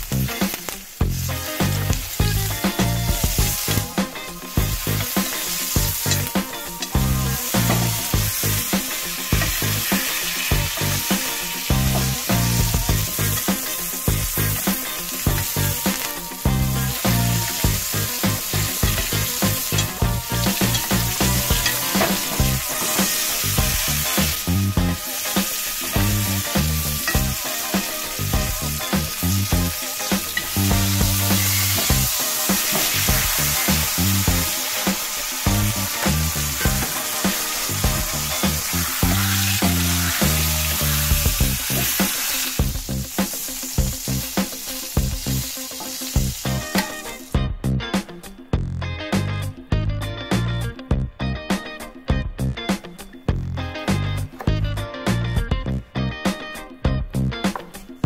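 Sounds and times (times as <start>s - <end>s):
steak sizzling in butter: 0.0s - 47.4s
background music with bass line: 0.0s - 58.0s
spoon basting in pan: 0.5s - 42.7s.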